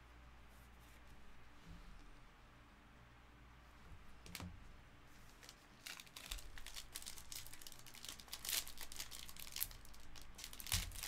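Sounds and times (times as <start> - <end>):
foil wrapper crinkling: 5.3 - 11.0.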